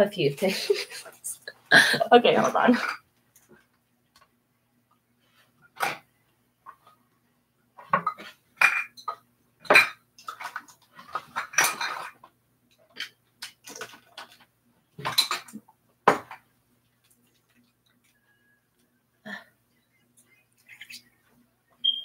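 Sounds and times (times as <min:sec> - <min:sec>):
hard objects clattering: 0:07.8 - 0:12.3.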